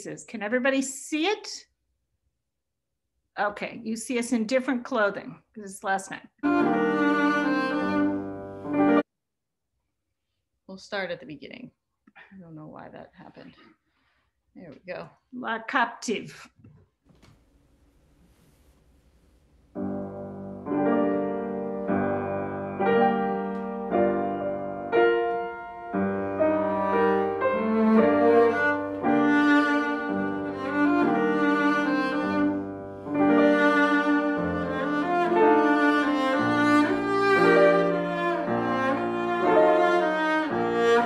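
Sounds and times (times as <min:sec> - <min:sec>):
cello: 0:06.4 - 0:09.0, 0:20.0 - 0:41.0
grand piano: 0:06.4 - 0:09.1, 0:19.7 - 0:41.0.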